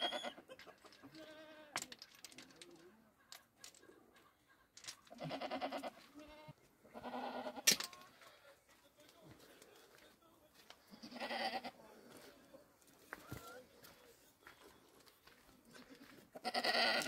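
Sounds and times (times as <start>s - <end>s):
goats bleating: 1.0s - 1.8s, 5.1s - 7.7s, 10.9s - 11.8s, 15.8s - 17.0s.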